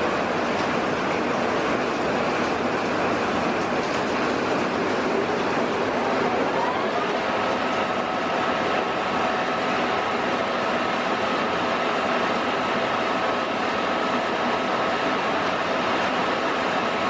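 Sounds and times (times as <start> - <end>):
metal lathe running: 0.0 - 17.0.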